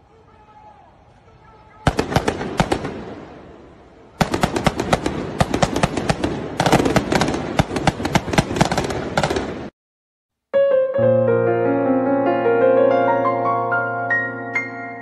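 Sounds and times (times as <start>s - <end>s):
rapid gunfire: 1.8s - 3.3s, 4.2s - 9.7s.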